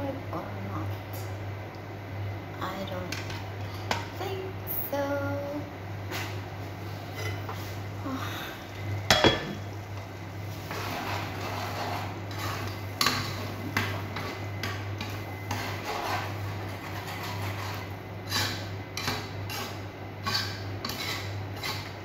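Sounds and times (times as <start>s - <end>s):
utensil scraping in a pan: 6.1s - 7.8s, 10.4s - 22.0s.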